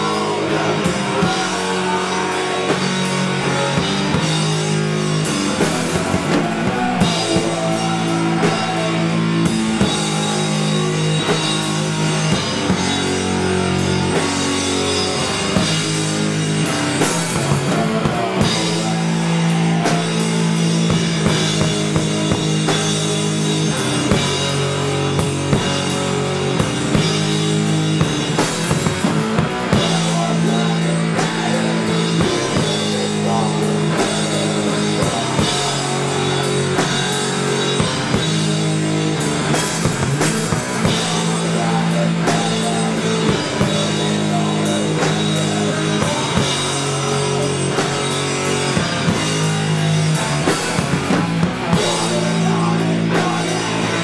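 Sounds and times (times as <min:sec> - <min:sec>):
distorted electric guitar chords: 0:00.0 - 0:54.0
drum kit: 0:00.0 - 0:54.0.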